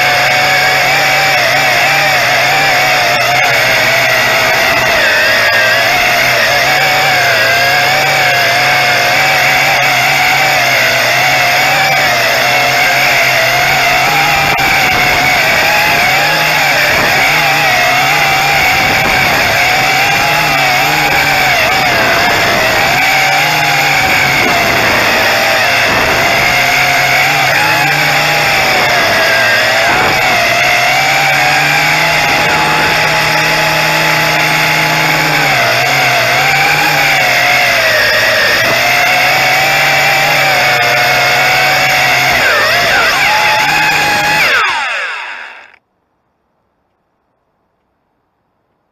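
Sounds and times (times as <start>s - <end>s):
quadcopter propellers whining: 0.0s - 45.8s.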